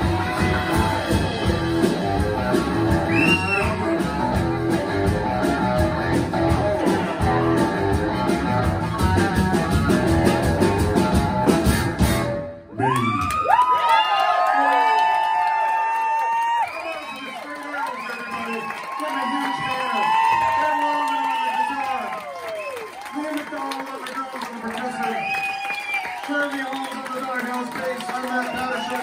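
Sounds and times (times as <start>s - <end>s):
audience cheering and whooping: 0.0s - 2.0s, 2.9s - 3.8s, 12.7s - 29.0s
live rockabilly band playing: 0.0s - 12.7s.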